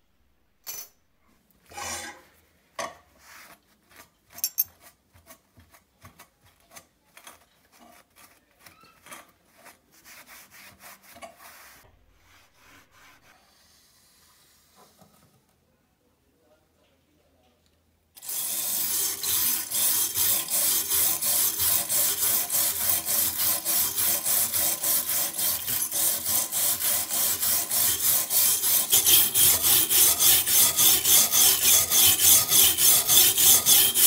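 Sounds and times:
tool scraping metal part: 1.7 - 2.3, 3.4 - 9.8, 18.2 - 34.0
paper towel rubbing: 3.2 - 4.2, 7.7 - 13.4.

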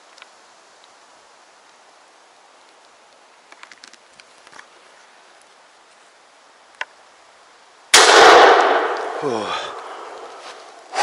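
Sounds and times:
shotgun shot echoing: 8.0 - 10.3.

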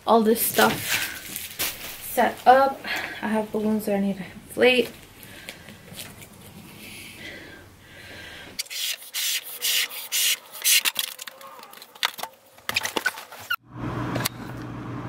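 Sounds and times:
balloon rubber rubbing: 8.7 - 10.9.

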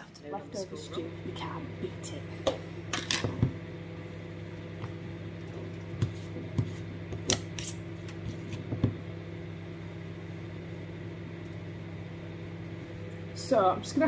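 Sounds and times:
steady low hum: 0.0 - 14.0
knife tapping and scraping: 6.0 - 9.0.

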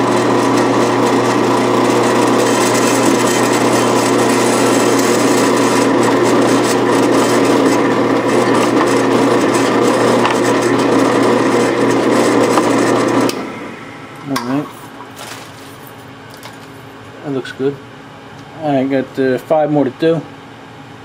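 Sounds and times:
drill press cutting metal: 0.0 - 13.5.

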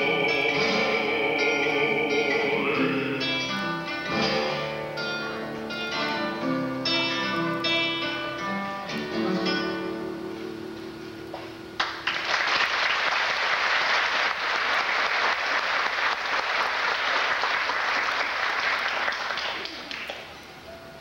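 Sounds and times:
acoustic guitar chord: 0.0 - 11.3
audience applauding: 11.8 - 20.4.

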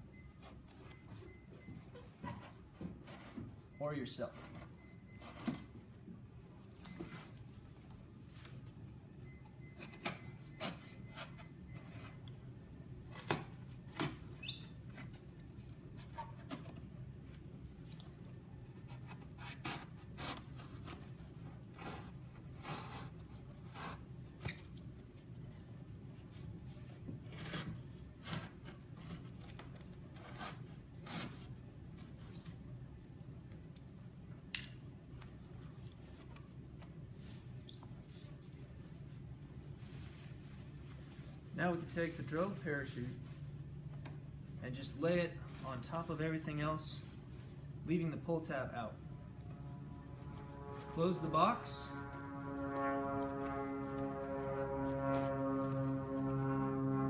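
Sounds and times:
knife cutting cardboard: 18.8 - 24.6, 27.2 - 32.6.

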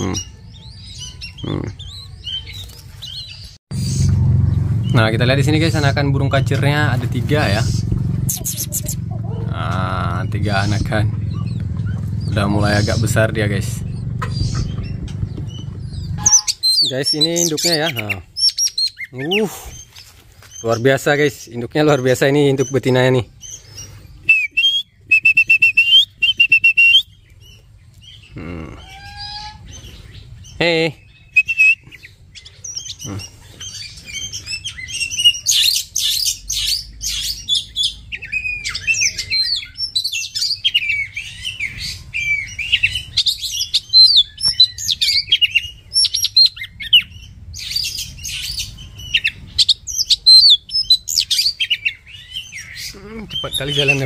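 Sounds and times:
bird whistling and chirping: 0.0 - 4.2, 13.8 - 20.0, 22.0 - 54.0
low bird calls: 0.0 - 54.0.

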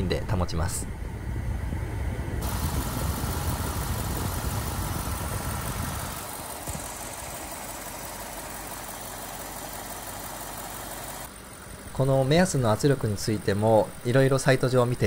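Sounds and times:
radiator fan rushing: 0.0 - 15.0
car engine running: 2.4 - 12.1.

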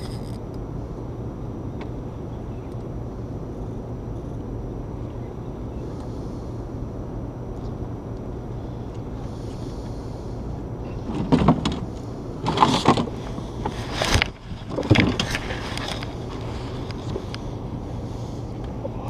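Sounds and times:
low rumble: 0.0 - 19.0
rustling scraping and knocks: 11.0 - 17.3.

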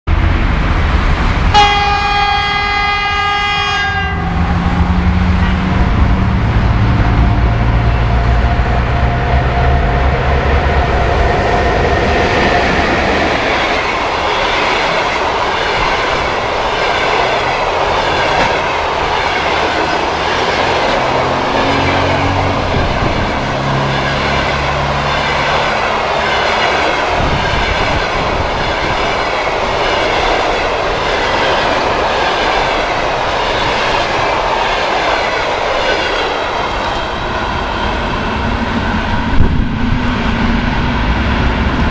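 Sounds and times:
locomotive humming: 0.1 - 41.9
locomotive horn blast: 1.5 - 10.3
train wheels clattering on rails: 4.3 - 41.9.

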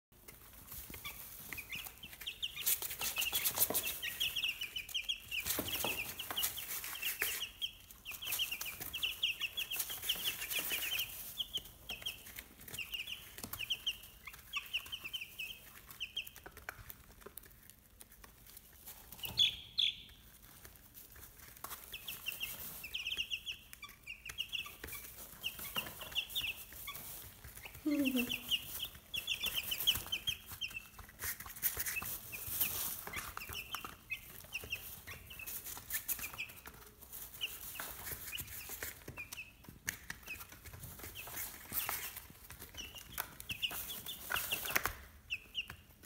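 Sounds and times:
chicks peeping: 0.2 - 46.0
rustling wood shavings: 24.8 - 39.1.

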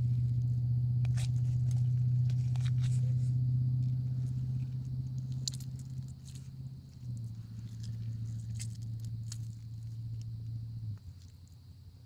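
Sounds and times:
low hum: 0.0 - 12.0
wet clay squelching in hand: 1.0 - 10.3.

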